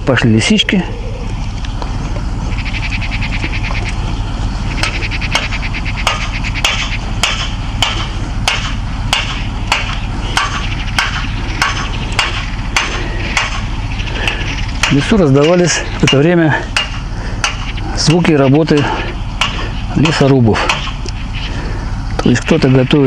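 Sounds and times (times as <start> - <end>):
hammer-like knocks: 4.8 - 13.7.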